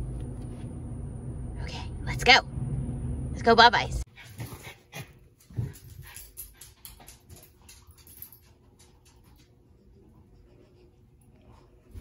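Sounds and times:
dog claws clicking on floor: 0:05.4 - 0:09.6.

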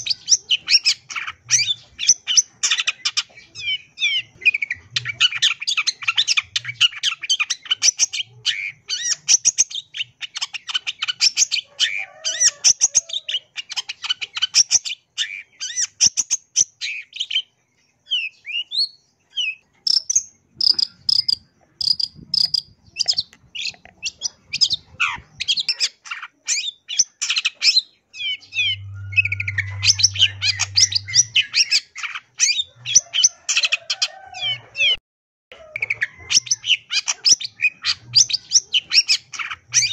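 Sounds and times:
shrike chattering song: 0:19.9 - 0:33.2.

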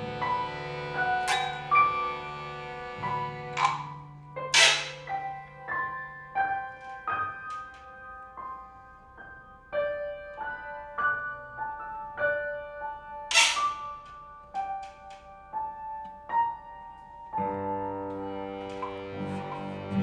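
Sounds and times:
slow piano notes: 0:00.0 - 0:20.0.

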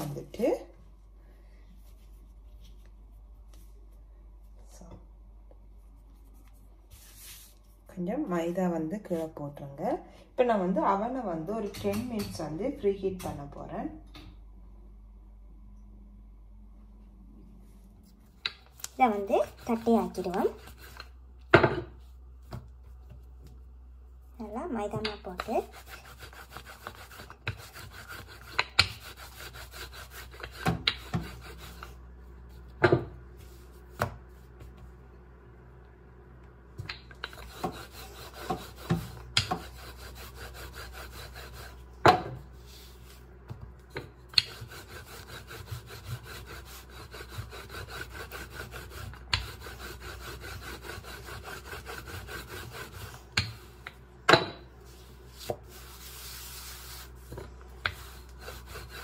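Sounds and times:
rolling pin rubbing dough: 0:06.1 - 0:07.7, 0:18.0 - 0:21.2, 0:24.4 - 0:32.8, 0:37.2 - 0:41.9, 0:42.5 - 0:54.0, 0:54.8 - 0:59.0.

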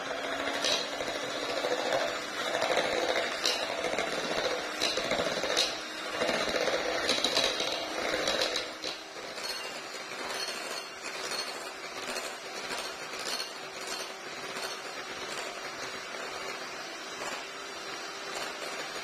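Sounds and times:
electric hand mixer whirring: 0:00.0 - 0:19.0
beaters clinking against bowl: 0:07.1 - 0:11.7.

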